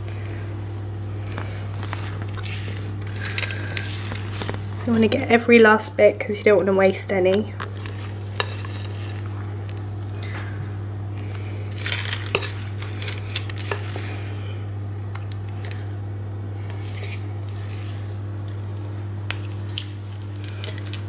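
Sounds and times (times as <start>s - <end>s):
steady low hum: 0.0s - 21.0s
spatula scraping batter: 1.4s - 5.2s, 7.7s - 9.4s, 11.9s - 14.3s, 16.7s - 18.2s.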